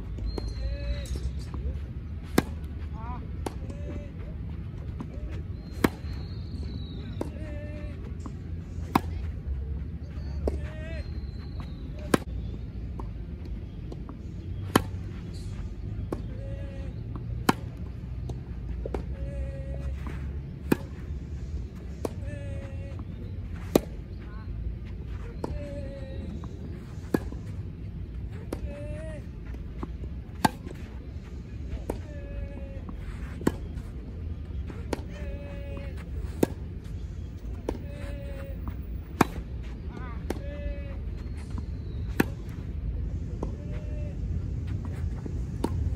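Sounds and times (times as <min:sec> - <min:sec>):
distant racket hits: 0:02.1 - 0:09.5, 0:11.4 - 0:24.3, 0:24.9 - 0:45.9
racket striking ball: 0:02.2 - 0:02.7, 0:30.3 - 0:30.8, 0:34.8 - 0:39.5, 0:41.2 - 0:42.5, 0:45.5 - 0:45.9.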